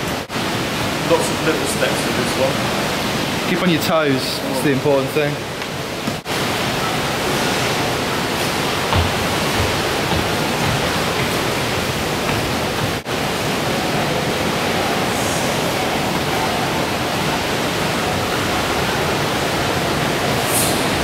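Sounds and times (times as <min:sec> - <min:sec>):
loud rushing hiss: 0:18.8 - 0:21.0.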